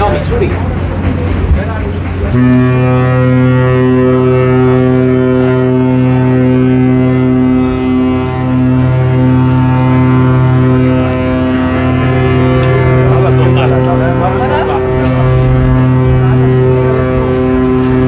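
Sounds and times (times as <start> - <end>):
ship's horn blast: 2.2 - 18.0.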